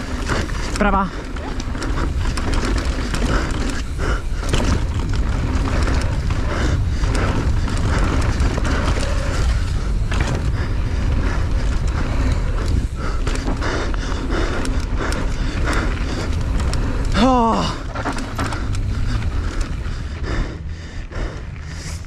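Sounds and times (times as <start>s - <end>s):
motorcycle engine: 0.0s - 22.0s
wind buffeting microphone: 0.0s - 22.0s
knocks and rattles: 15.6s - 19.9s.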